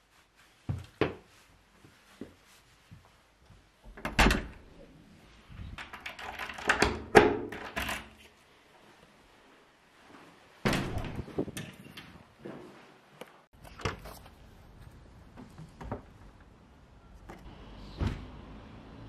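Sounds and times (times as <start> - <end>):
door thud: 10.6 - 11.3.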